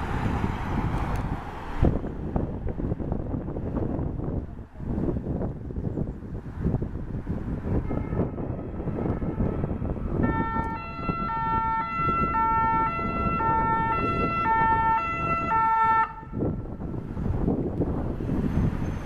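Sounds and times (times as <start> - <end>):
street traffic noise: 0.0 - 19.0
ambulance siren: 7.8 - 16.8.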